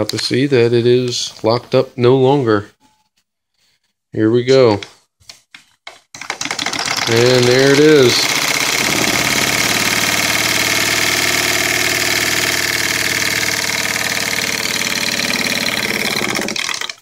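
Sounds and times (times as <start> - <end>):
toy steam engine chuffing: 6.4 - 17.0.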